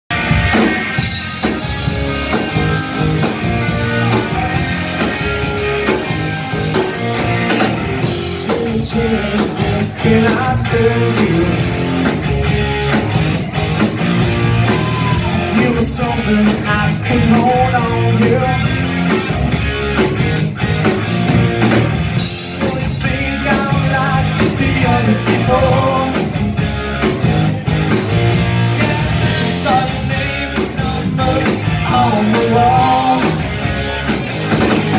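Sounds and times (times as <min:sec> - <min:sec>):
bass guitar: 0:00.0 - 0:34.9
drums keeping a steady beat: 0:00.1 - 0:34.9
electric guitars: 0:00.1 - 0:34.9
person singing: 0:08.4 - 0:12.0, 0:14.4 - 0:18.8, 0:22.5 - 0:26.4, 0:28.4 - 0:34.2.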